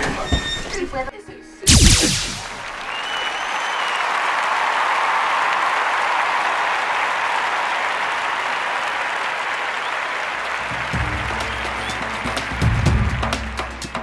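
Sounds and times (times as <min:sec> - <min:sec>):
crowd applause: 0:02.6 - 0:13.5.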